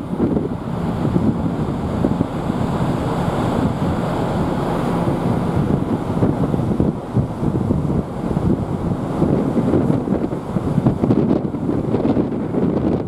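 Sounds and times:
wind on microphone: 0:00.0 - 0:13.0.

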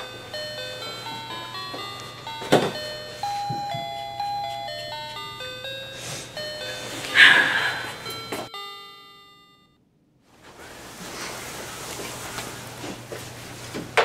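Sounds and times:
melody of ringing notes: 0:00.0 - 0:09.8.

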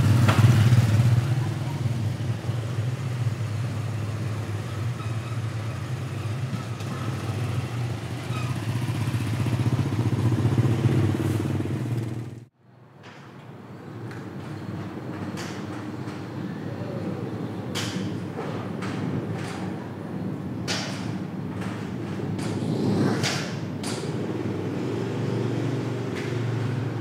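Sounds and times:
motorbike engine running: 0:00.0 - 0:04.6, 0:05.8 - 0:12.5
faint street ambience: 0:00.0 - 0:27.0.

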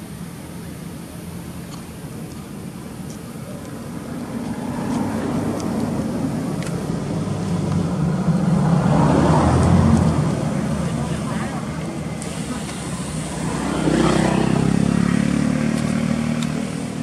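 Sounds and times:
vehicle engine passing by: 0:04.1 - 0:17.0.

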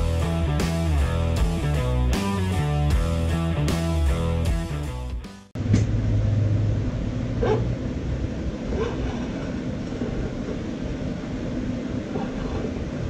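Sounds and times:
steady low hum: 0:05.6 - 0:13.0
dog barking: 0:07.4 - 0:07.7, 0:08.7 - 0:09.4, 0:12.1 - 0:12.8.

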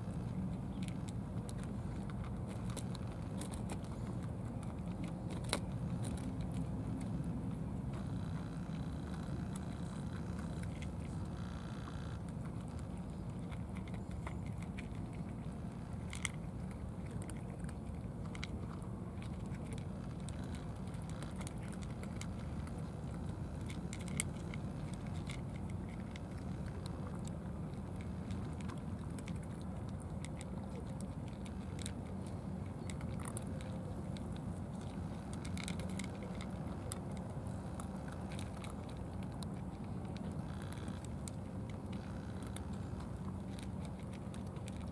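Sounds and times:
cats crunching food: 0:00.0 - 0:44.9
low background rumble: 0:00.0 - 0:44.9.

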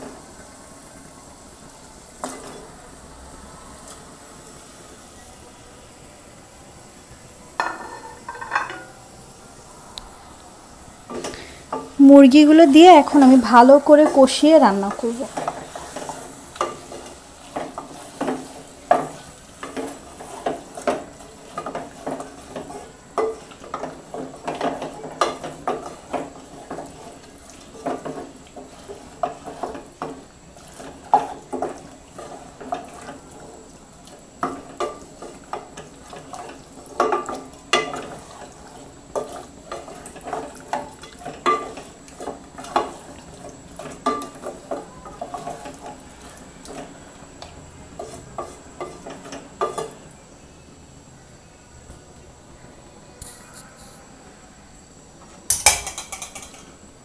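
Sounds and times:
faint frying sizzle: 0:00.0 - 0:57.0
wooden spatula scraping metal pot: 0:07.6 - 0:08.9, 0:11.1 - 0:33.6, 0:34.4 - 0:47.0, 0:47.9 - 0:50.0.

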